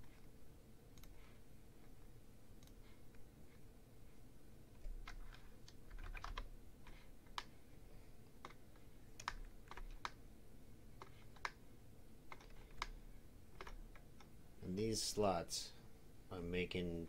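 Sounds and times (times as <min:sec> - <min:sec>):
keyboard keys clicking: 0:04.8 - 0:07.5, 0:09.2 - 0:10.2, 0:11.0 - 0:11.6, 0:12.3 - 0:13.0, 0:13.6 - 0:14.3.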